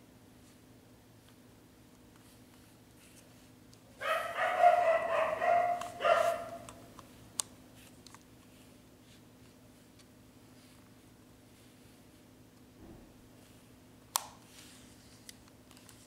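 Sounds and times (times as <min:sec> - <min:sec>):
dog crying: 0:04.0 - 0:06.6.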